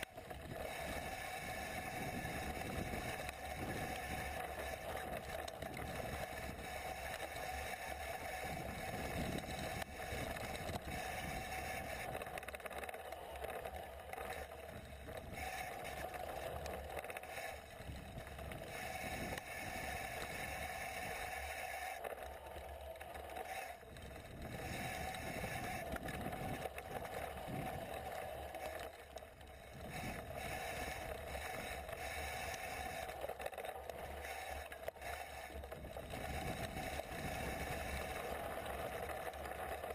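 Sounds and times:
wind and tyre noise: 0:00.0 - 0:39.9.

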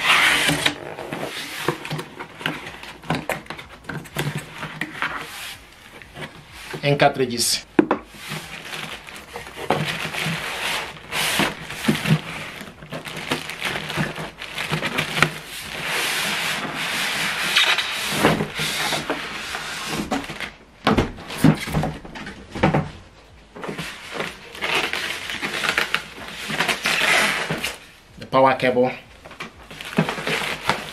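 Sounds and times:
foam and plastic scraping cardboard: 0:00.0 - 0:28.0, 0:29.2 - 0:30.9.

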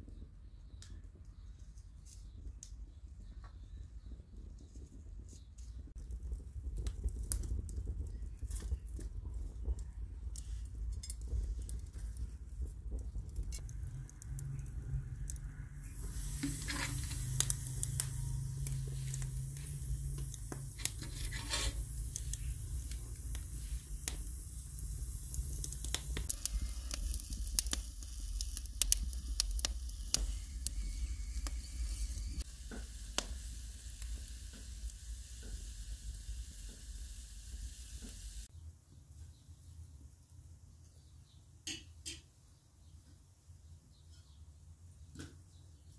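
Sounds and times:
wood fire crackling and popping: 0:05.8 - 0:38.5
vegetables sizzling on skewers: 0:13.2 - 0:38.5
steady hiss: 0:13.5 - 0:38.5.

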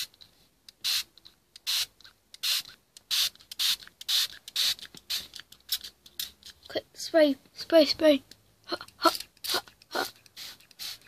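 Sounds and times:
spray bottle squirting: 0:00.8 - 0:06.6, 0:08.8 - 0:11.0.

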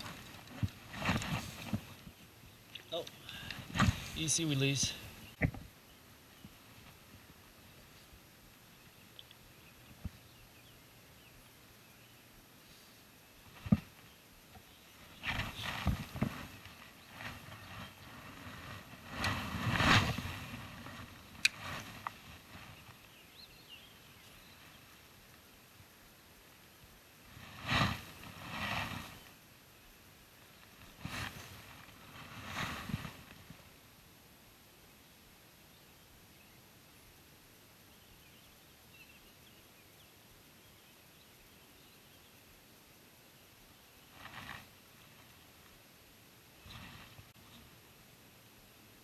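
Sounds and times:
faint bird chirps: 0:37.8 - 0:42.6.

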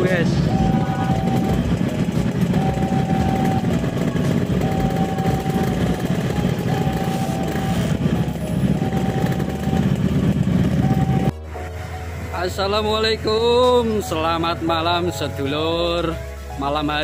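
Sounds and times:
crossing warning alarm tone: 0:00.0 - 0:11.4
train rumbling past: 0:00.0 - 0:15.1.

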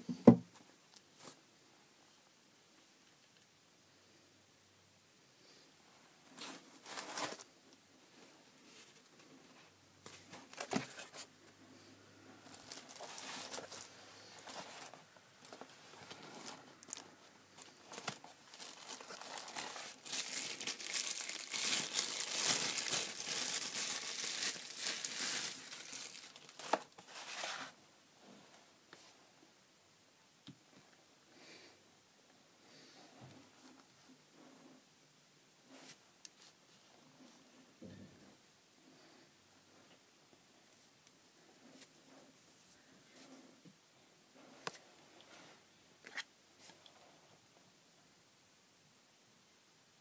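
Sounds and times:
plastic packaging crinkling: 0:12.5 - 0:27.7.

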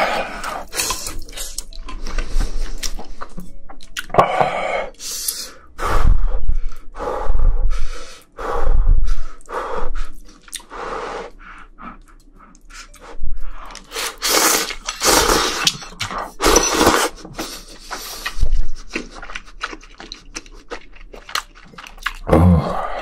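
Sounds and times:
chewing noodles: 0:00.4 - 0:04.1, 0:10.1 - 0:10.7, 0:11.9 - 0:22.3
wet noodle slurping: 0:13.7 - 0:15.8.

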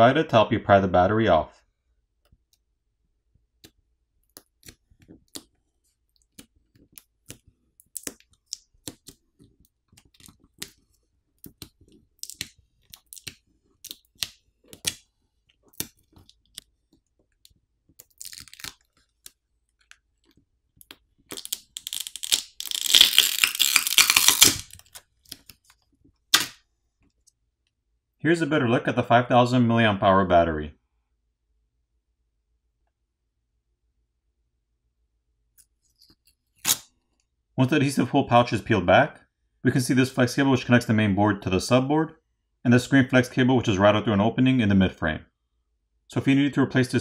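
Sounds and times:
fingers clicking and tapping phone: 0:03.6 - 0:21.8
adhesive tearing with loud crackling: 0:18.0 - 0:20.4, 0:21.2 - 0:26.6, 0:36.5 - 0:36.9.

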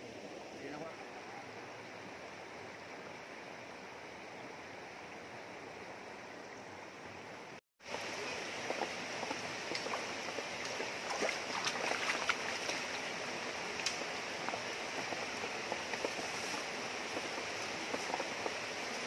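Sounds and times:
river flowing over rocks: 0:00.0 - 0:19.0
hands splashing in water: 0:11.0 - 0:12.8.

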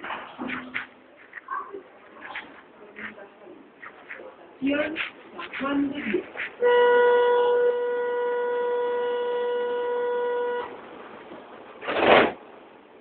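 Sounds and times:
train door warning buzzer: 0:06.6 - 0:10.8.

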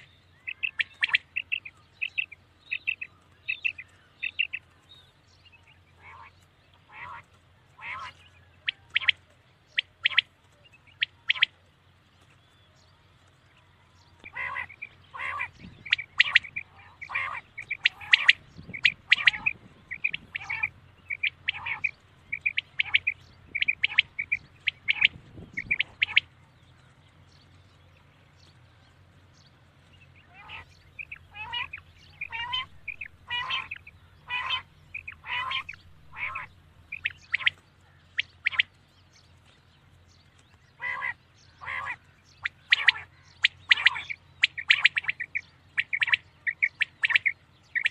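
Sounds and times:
quail calling: 0:00.0 - 0:04.7, 0:05.9 - 0:11.6, 0:14.2 - 0:26.3, 0:30.2 - 0:38.8, 0:40.7 - 0:47.9
faint low hum: 0:00.0 - 0:47.9.

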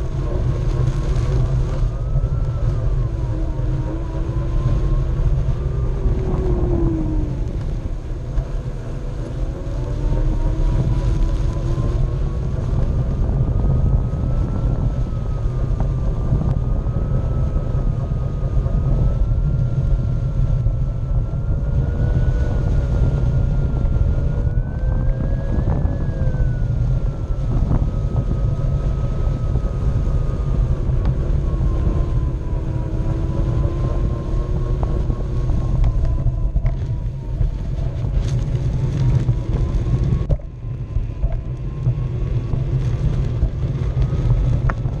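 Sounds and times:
wind on microphone: 0:00.0 - 0:45.0
tyre rolling rumble: 0:30.4 - 0:45.0.

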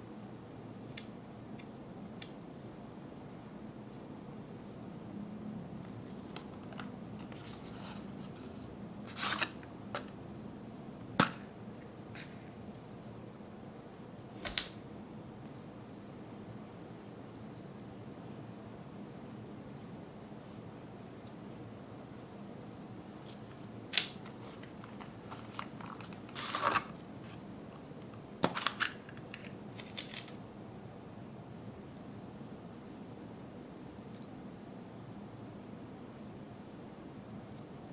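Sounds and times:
packaging rustle: 0:23.3 - 0:27.4.

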